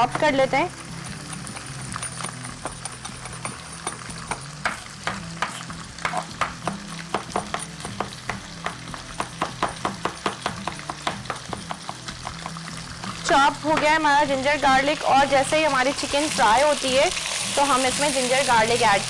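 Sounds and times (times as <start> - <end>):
chicken sizzling in a pan: 0.0 - 19.0
knife chopping on wooden board: 2.6 - 12.5.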